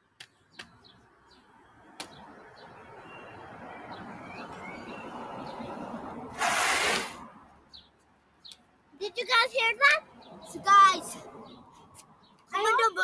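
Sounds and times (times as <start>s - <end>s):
bicycle tyres on wet asphalt: 6.3s - 7.3s.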